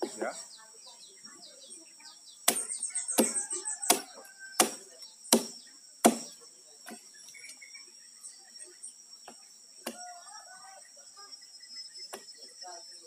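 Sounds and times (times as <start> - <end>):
high insect drone: 0.0 - 13.0
axe chopping into log: 2.4 - 7.0.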